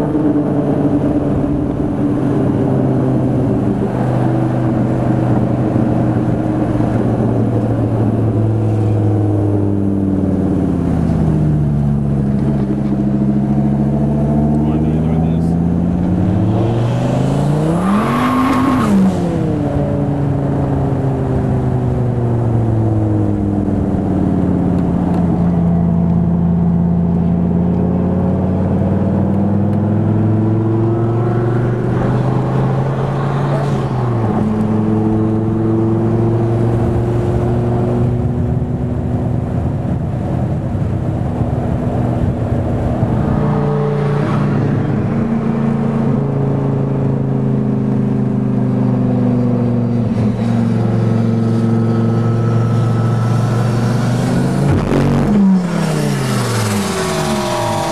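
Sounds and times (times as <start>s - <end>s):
car engine revving: 0.0s - 57.9s
high whine: 49.4s - 57.9s.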